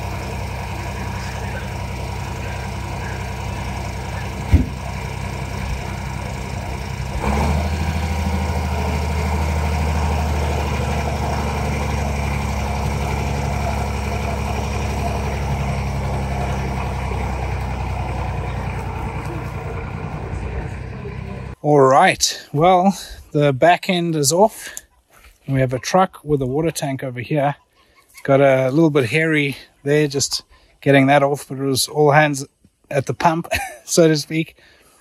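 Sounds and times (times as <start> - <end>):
truck diesel engine revving: 0.0 - 21.6
sharp knock: 4.5 - 4.8.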